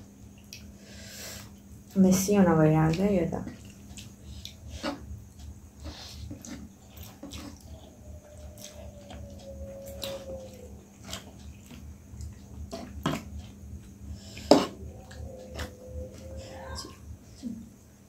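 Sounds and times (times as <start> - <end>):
low steady hum: 0.0 - 18.0
slurping and chewing noodles: 3.5 - 17.4.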